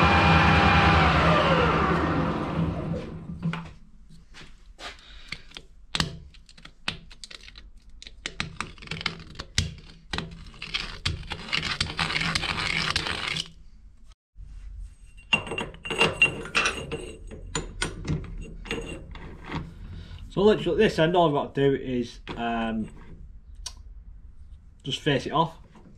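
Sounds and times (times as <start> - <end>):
steady metal scraping: 14.8 - 21.0, 22.2 - 23.5.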